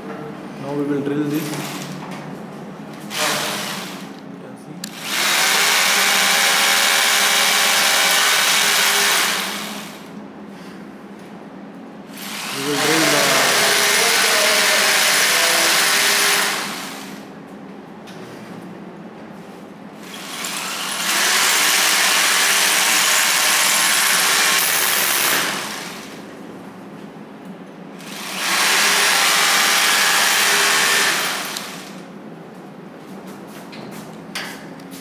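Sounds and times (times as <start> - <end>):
hammer drill boring concrete: 3.1 - 4.1, 4.9 - 10.1, 12.1 - 17.2, 20.0 - 26.2, 28.0 - 32.0.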